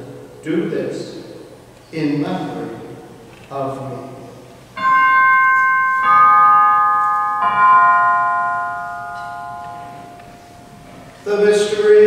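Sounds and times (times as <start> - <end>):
altar chimes ringing: 4.8 - 11.4.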